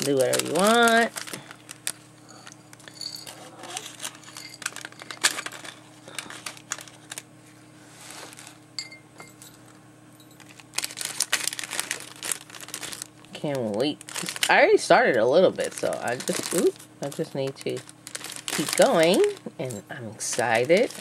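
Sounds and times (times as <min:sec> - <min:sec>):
hands rustling tissue paper: 0:00.0 - 0:02.2, 0:03.7 - 0:08.6, 0:10.4 - 0:21.0
faint steady hum: 0:00.0 - 0:21.0
clinks of pearls and metal charms: 0:02.3 - 0:05.7.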